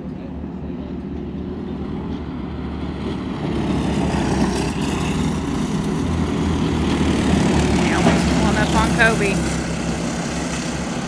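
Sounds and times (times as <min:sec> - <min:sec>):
go-kart engines racing: 0:00.0 - 0:11.0.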